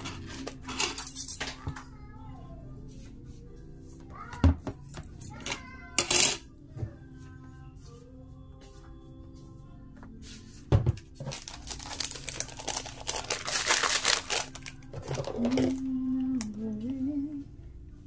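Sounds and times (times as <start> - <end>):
sachet shaken and crinkled: 11.2 - 15.9.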